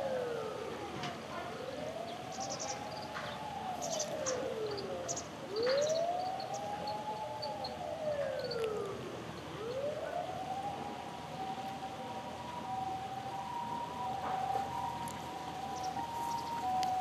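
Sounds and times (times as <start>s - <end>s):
siren wailing: 0.0s - 17.0s
high bird chirps: 15.7s - 16.6s.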